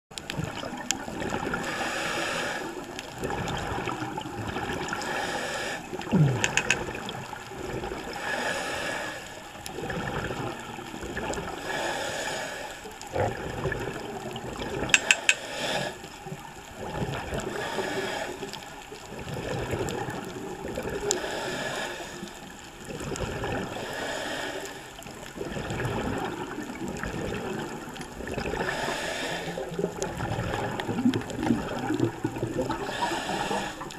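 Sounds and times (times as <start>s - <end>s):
exhaust bubbles gurgling: 0.1s - 5.2s, 5.8s - 8.4s, 9.4s - 11.8s, 13.0s - 15.2s, 15.8s - 24.0s, 24.9s - 33.9s
scuba regulator breathing: 1.5s - 3.9s, 4.9s - 7.0s, 8.0s - 10.5s, 11.5s - 13.2s, 14.9s - 16.4s, 17.4s - 19.1s, 20.9s - 22.7s, 23.6s - 25.2s, 28.4s - 31.2s, 31.8s - 33.9s
sharp clicks: 6.3s - 7.0s, 14.9s - 15.4s.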